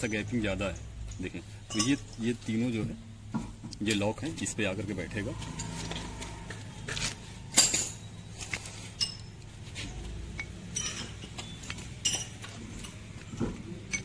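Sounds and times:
metal gear parts clinking: 7.0 - 9.5, 10.4 - 13.2.

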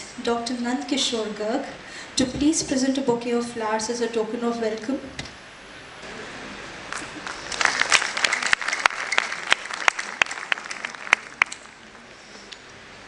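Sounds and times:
audience applauding: 6.9 - 11.9.

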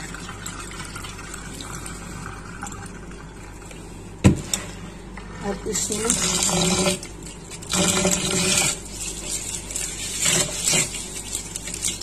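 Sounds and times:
water sloshing in a bowl: 5.4 - 12.0.

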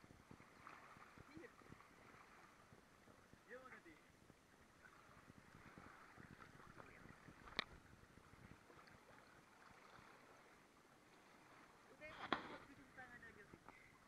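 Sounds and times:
lake water lapping: 0.0 - 14.0.

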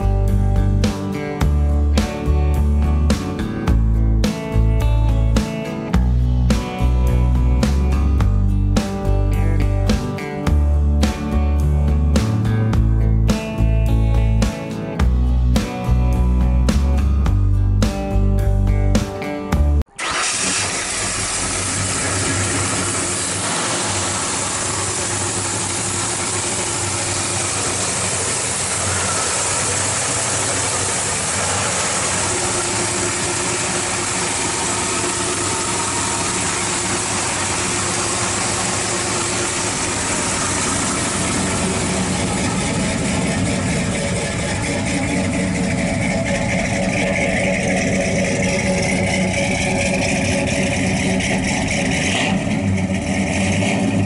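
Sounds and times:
truck engine idling: 20.0 - 54.0.

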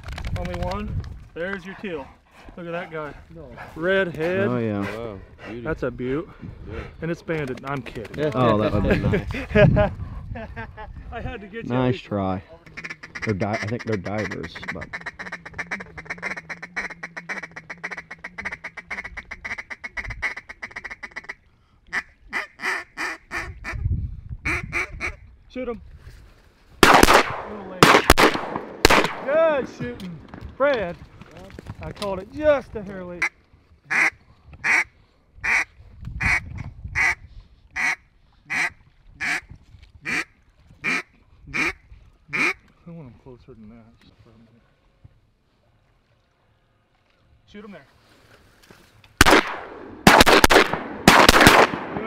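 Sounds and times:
duck call feeding chuckle: 12.8 - 23.5
duck call quacks: 12.8 - 23.8, 33.9 - 36.4, 37.0 - 37.2, 37.8 - 39.4, 40.0 - 42.6.

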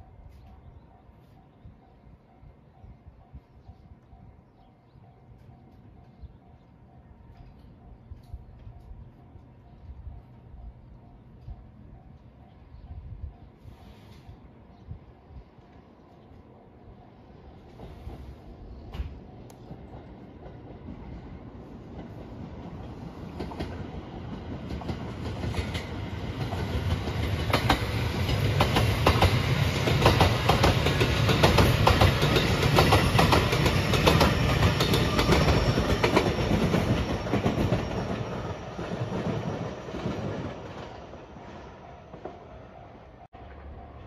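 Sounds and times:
electric train passing: 0.0 - 44.0
wheels clacking over rail joints: 21.9 - 41.0.

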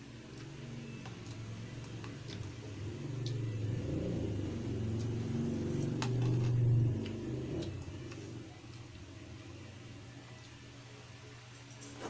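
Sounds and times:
low rumble: 0.4 - 10.8.

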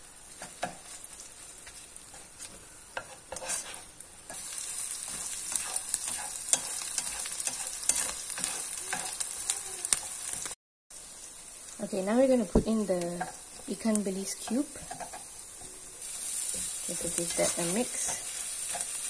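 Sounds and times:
food sizzling in hot oil: 0.0 - 19.0
plastic spatula scraping wok: 3.0 - 3.9.

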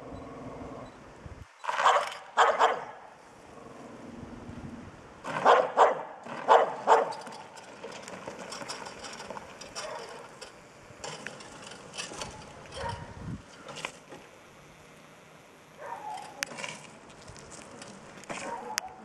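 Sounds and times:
small dog barking: 1.8 - 3.0, 5.4 - 7.2, 12.8 - 13.1, 15.8 - 16.5, 18.4 - 19.0.

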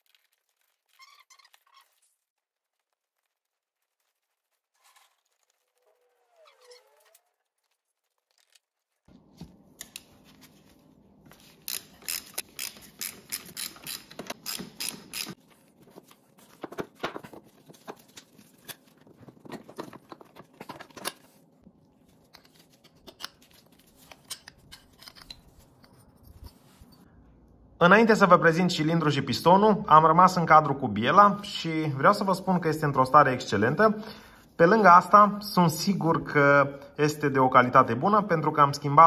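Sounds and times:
metal parts clicking: 11.6 - 15.4, 24.0 - 26.6.

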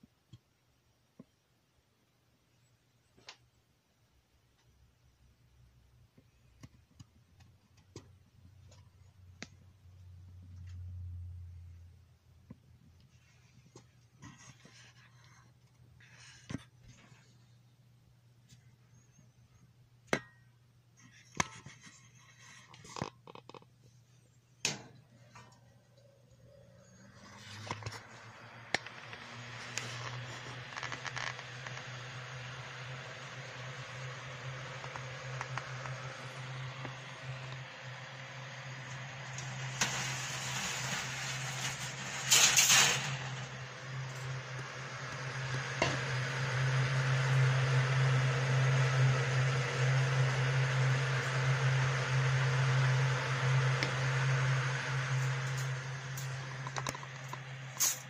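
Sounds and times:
faint low hum: 0.0 - 58.0
fan air rushing: 24.6 - 58.0.

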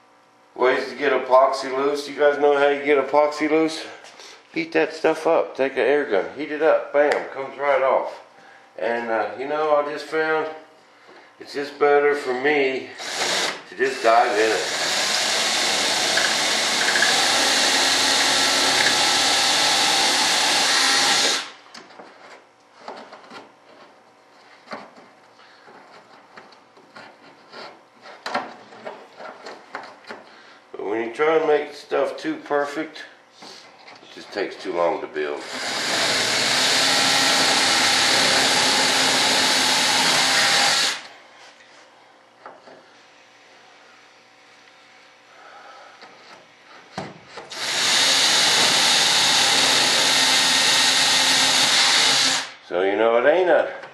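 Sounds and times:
electric drill boring: 13.0 - 21.6, 35.4 - 41.2, 47.5 - 52.6.

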